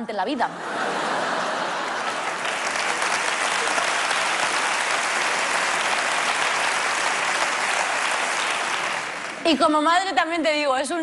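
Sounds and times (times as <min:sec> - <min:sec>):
audience applauding: 0:01.0 - 0:09.5.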